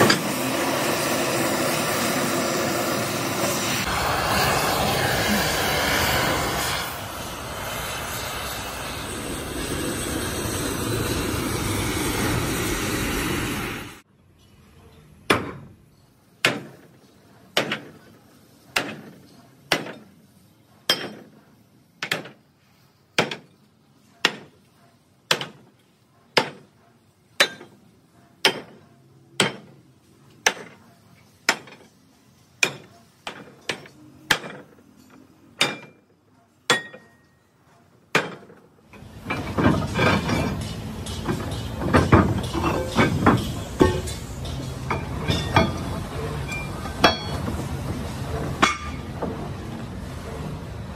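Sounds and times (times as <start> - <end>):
continuous metal clatter: 23.2 - 36.1, 36.7 - 50.9
sledgehammer striking steel plate: 27.4 - 27.8, 29.4 - 29.8, 35.6 - 36.0, 39.4 - 45.8, 46.5 - 47.4, 48.5 - 49.1.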